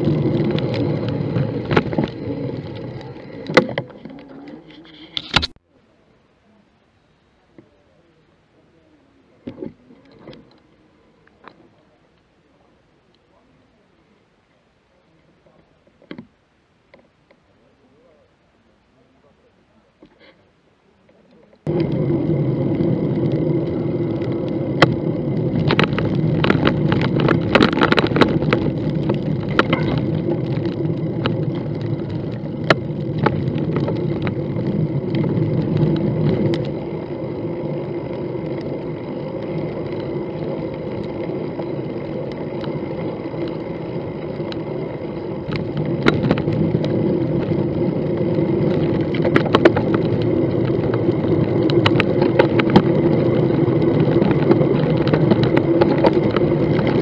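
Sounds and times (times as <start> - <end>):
bicycle tyres rumbling on pavement: 0.0 - 5.5, 21.6 - 57.0
bicycle clicks and rattles: 21.7 - 57.0.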